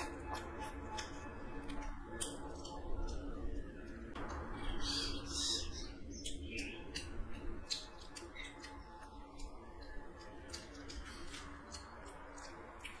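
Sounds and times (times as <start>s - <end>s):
wet chewing and lip smacks: 0.0s - 3.3s, 6.9s - 13.0s
steady low hum: 0.0s - 13.0s.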